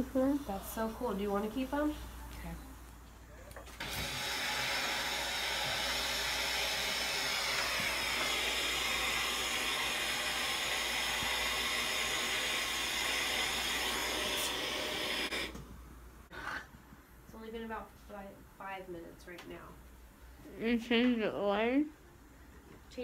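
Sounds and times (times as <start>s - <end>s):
motor hissing and whining: 3.8s - 15.6s.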